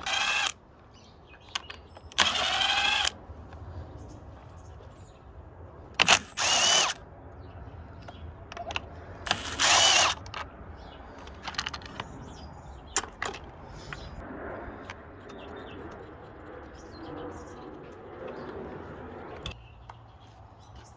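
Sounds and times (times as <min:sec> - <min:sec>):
cordless driver whirring: 0:00.0 - 0:00.6, 0:01.6 - 0:03.2, 0:06.0 - 0:07.0, 0:08.6 - 0:10.5
screws and plastic parts rattling: 0:08.5 - 0:10.5, 0:11.1 - 0:12.2.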